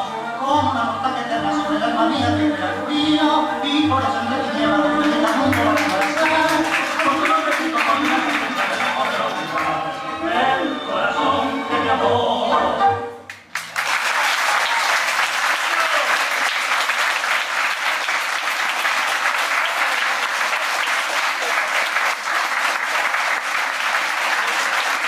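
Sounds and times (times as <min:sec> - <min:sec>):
tango song with singer: 0:00.0 - 0:13.3
audience applause: 0:05.1 - 0:09.9, 0:13.3 - 0:25.0.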